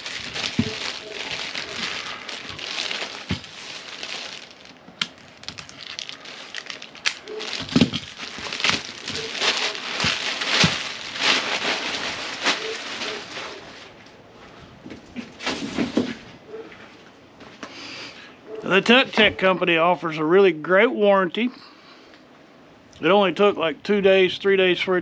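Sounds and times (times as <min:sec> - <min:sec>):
plastic bags crinkling: 0:00.0 - 0:14.0.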